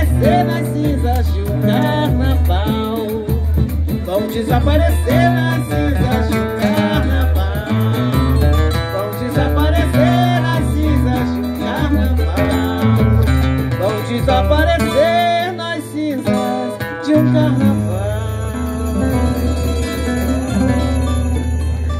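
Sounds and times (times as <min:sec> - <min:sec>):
plucked guitar: 0:00.0 - 0:21.9.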